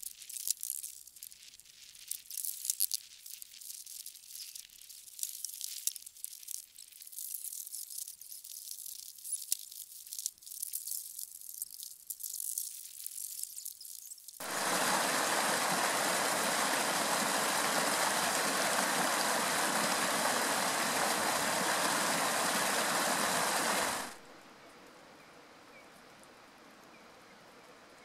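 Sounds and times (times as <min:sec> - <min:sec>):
faint outdoor background: 0:00.0 - 0:28.0
mountain stream rushing: 0:14.4 - 0:24.2.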